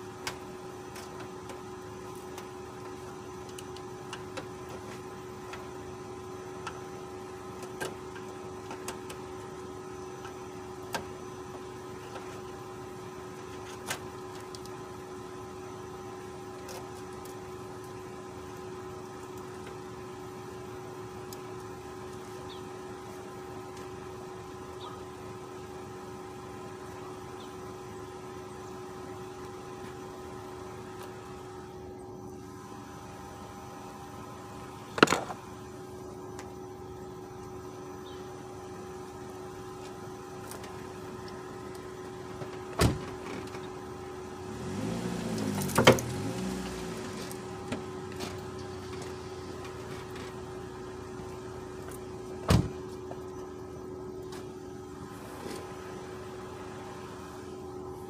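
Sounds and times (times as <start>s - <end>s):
vehicle engine idling: 0.0s - 58.0s
engine revving: 44.4s - 49.6s.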